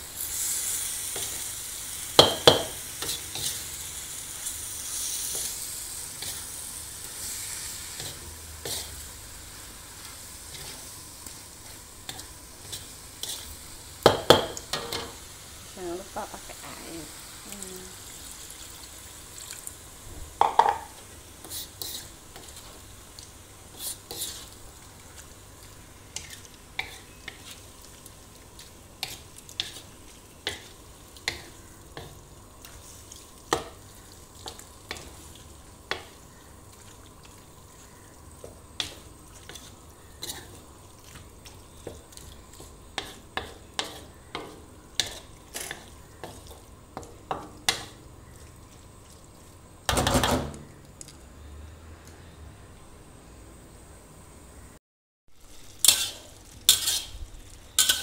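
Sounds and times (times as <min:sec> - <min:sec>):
faint sizzle: 0:00.0 - 0:58.0
spatula scraping a wok: 0:02.6 - 0:03.8, 0:04.8 - 0:09.1, 0:10.2 - 0:13.7, 0:21.4 - 0:22.8, 0:23.7 - 0:24.6, 0:26.2 - 0:27.7, 0:38.8 - 0:46.6, 0:55.5 - 0:58.0.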